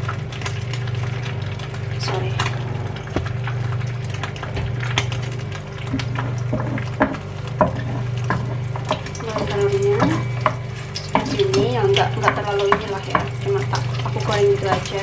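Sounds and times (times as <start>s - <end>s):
low hum: 0.0s - 14.8s
egg frying in oil: 0.0s - 15.0s
wooden spatula knocking pan: 6.0s - 13.5s.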